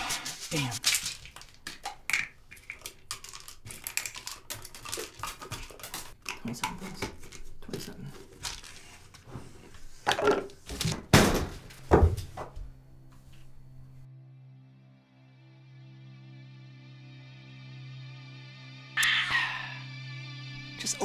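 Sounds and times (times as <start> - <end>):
pill bottle cap clicks and rattles: 0.9 - 6.8.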